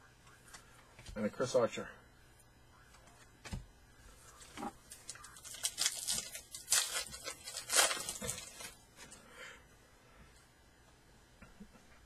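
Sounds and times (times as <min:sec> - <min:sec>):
foil wrapper being torn open: 0:04.9 - 0:08.8.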